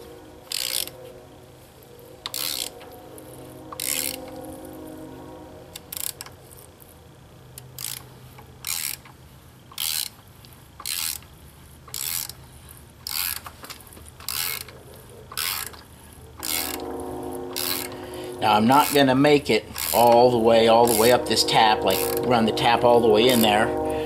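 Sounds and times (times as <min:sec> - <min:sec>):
ratchet wrench clicking: 0:00.5 - 0:01.0, 0:02.2 - 0:04.4, 0:05.7 - 0:16.9, 0:17.5 - 0:18.0, 0:18.7 - 0:21.2, 0:21.9 - 0:22.3.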